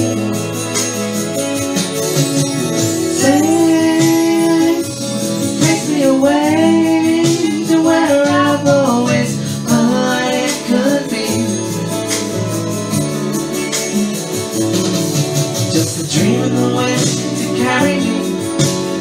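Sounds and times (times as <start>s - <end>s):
instrumental backing: 0.0s - 19.0s
person singing: 3.1s - 12.1s, 15.6s - 19.0s.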